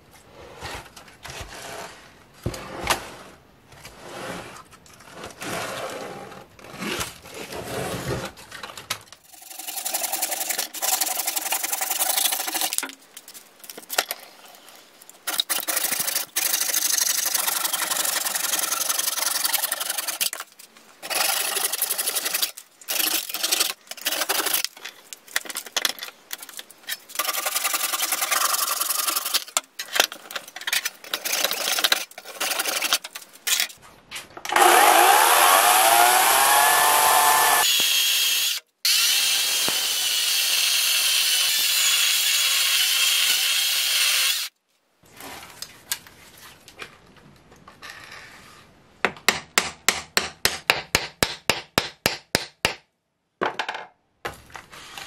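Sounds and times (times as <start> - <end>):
hand saw cutting wood: 9.4 - 12.8, 15.3 - 20.4, 21.0 - 24.7, 27.0 - 30.1, 34.5 - 44.5
cordless chainsaw cutting: 34.5 - 44.5.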